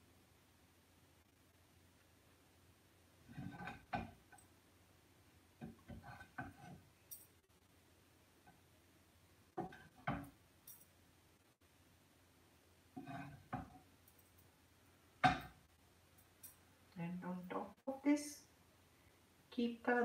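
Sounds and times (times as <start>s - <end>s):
wooden spatula scraping pan: 3.2s - 4.1s, 5.7s - 6.8s, 12.9s - 13.8s.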